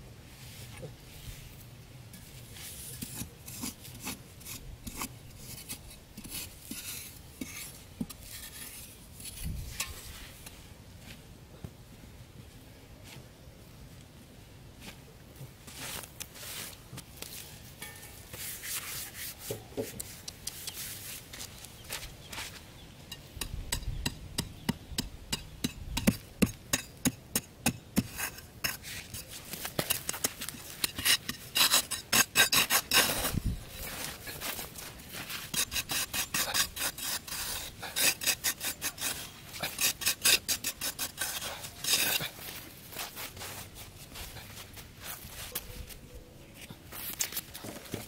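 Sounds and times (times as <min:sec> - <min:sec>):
spade scraping sandy soil: 0:02.2 - 0:10.5, 0:15.7 - 0:21.3, 0:28.0 - 0:45.7.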